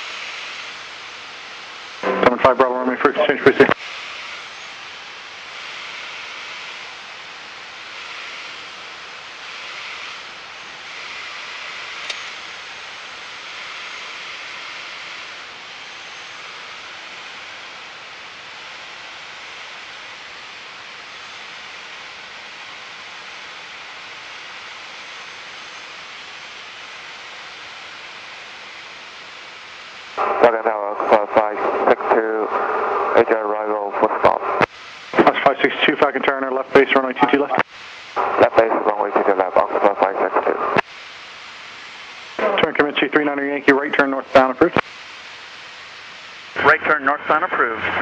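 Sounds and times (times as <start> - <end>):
aircraft cabin engine and airflow: 0.0 - 48.0
sharp click: 12.0 - 12.3.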